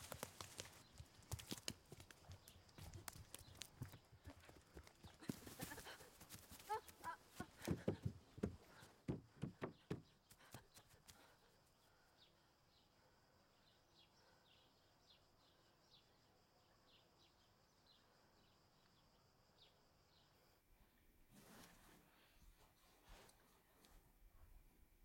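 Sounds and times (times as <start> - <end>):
bare footsteps on grass and stone: 0.0 - 10.7
faint birds chirping: 0.0 - 25.0.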